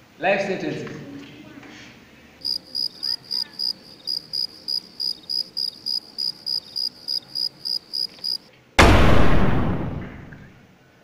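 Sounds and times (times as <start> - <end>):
cricket chirps: 2.4 - 8.5.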